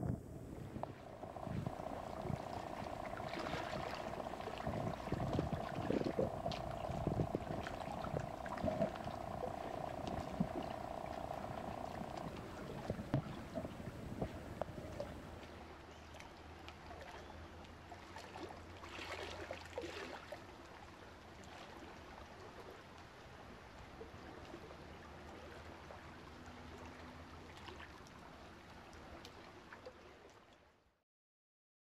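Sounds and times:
low hum: 0.0s - 15.4s
small clicks and crackles: 0.0s - 15.5s
underwater hiss of water: 0.6s - 15.3s.

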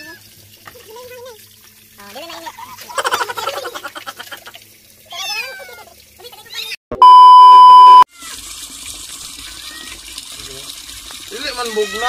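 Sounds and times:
water running: 0.0s - 6.8s, 8.1s - 12.0s
flat beep tone: 6.9s - 8.0s.

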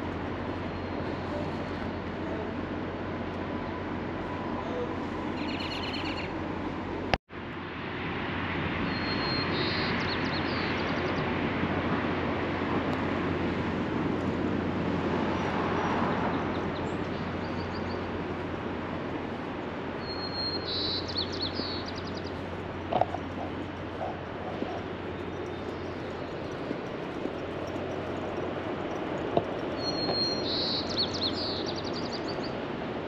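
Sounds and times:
steady low hum: 11.2s - 33.0s
vehicle passing: 11.3s - 33.0s.

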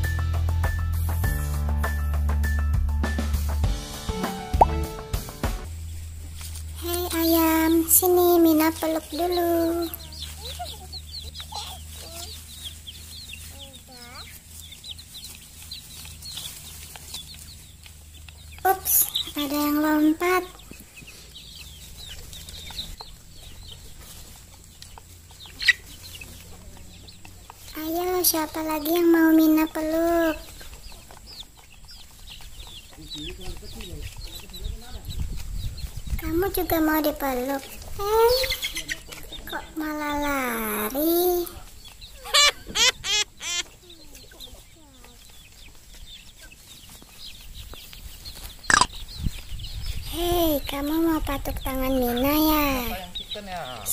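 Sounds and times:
chicks peeping: 0.0s - 53.9s
child squealing with laughter: 42.2s - 43.8s.

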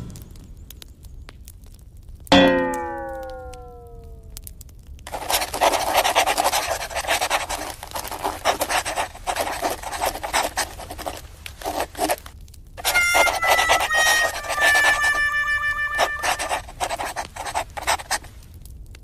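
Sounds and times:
short steady tones: 12.8s - 17.9s.

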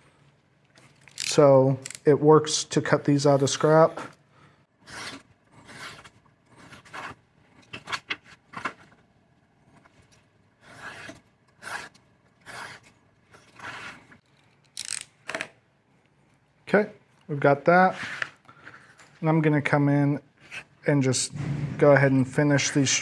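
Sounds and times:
knife scraping through leather: 4.8s - 7.2s, 10.6s - 14.2s.

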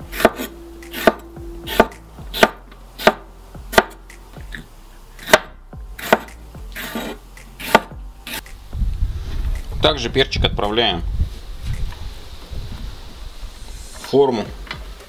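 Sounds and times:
knife scraping a board: 0.1s - 3.2s, 5.2s - 8.5s
knife chopping on a board: 0.1s - 4.0s, 5.2s - 8.5s.

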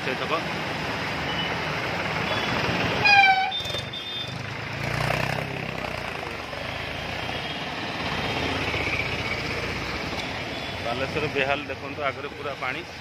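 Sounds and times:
motorbike engines running: 0.0s - 13.0s
street noise: 0.0s - 13.0s
vehicle horn toot: 2.3s - 4.3s.

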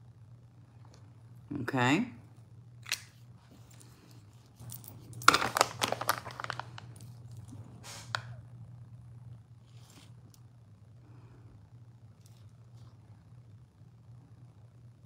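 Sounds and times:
faint steady hum: 0.0s - 15.0s
crinkling and clicking handling noise: 2.8s - 8.3s.

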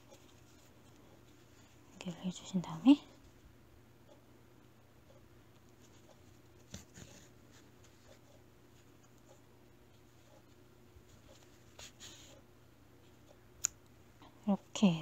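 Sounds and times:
faint yarn rustling: 0.0s - 3.4s, 5.8s - 13.3s.

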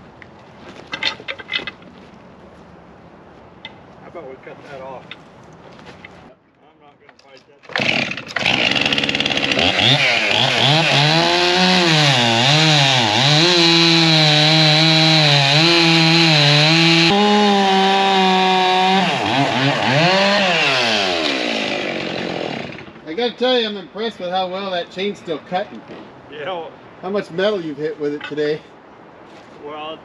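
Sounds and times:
chainsaw cutting through log: 7.7s - 23.0s.

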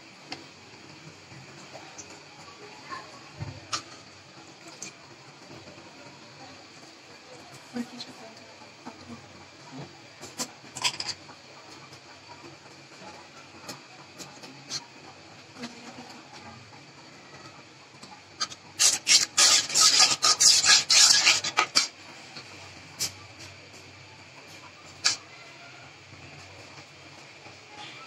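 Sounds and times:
paste frying in oil: 0.1s - 26.4s
metal spatula scraping a pot: 18.4s - 22.0s.

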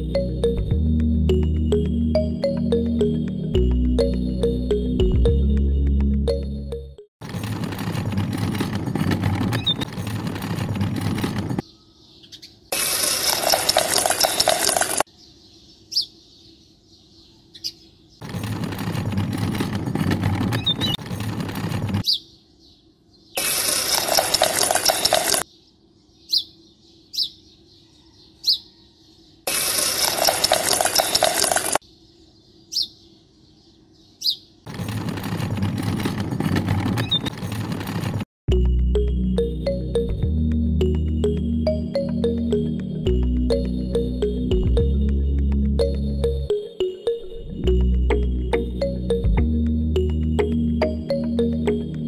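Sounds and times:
small birds chirping: 11.5s - 18.4s, 20.4s - 21.4s, 22.0s - 34.9s, 37.0s - 37.3s.

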